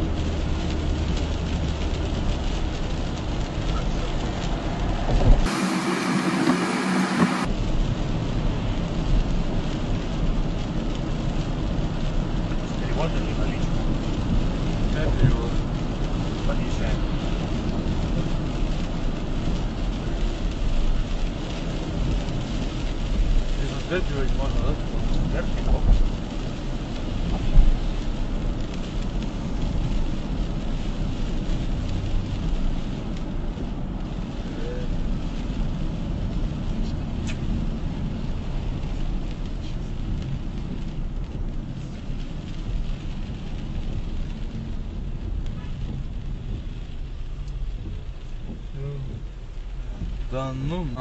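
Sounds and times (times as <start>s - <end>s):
engine low rumble: 0.0s - 51.0s
road noise hiss: 0.0s - 51.0s
short low thump: 5.0s - 7.5s
tyre hiss: 5.4s - 7.5s.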